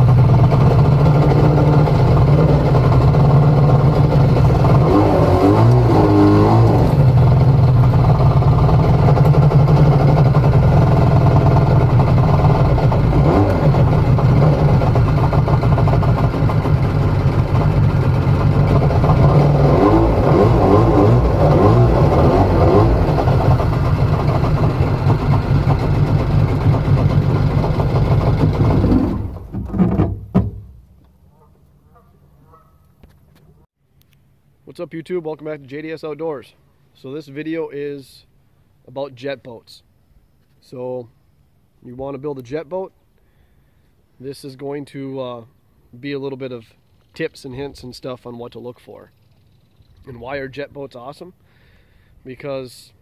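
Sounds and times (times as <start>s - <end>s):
boat engine running: 0.0s - 30.8s.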